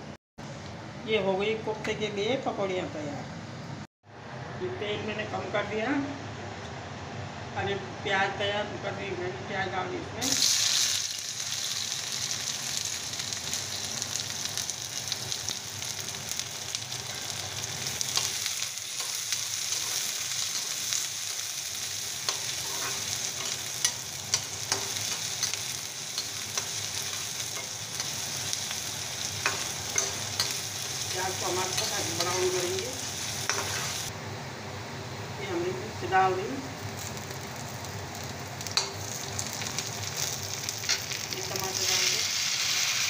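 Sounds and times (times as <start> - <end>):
onions sizzling in hot oil: 10.2 - 43.0
metal spatula scraping pan: 22.3 - 25.2.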